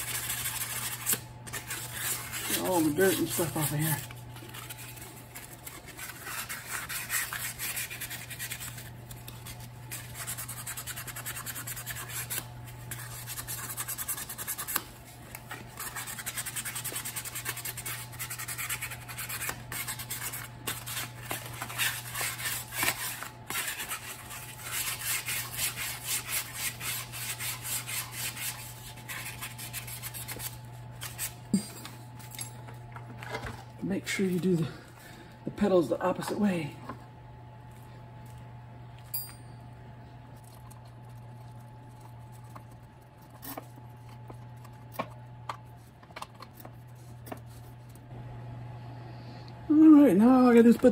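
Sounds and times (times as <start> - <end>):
rag scrubbing metal: 0.0 - 4.8.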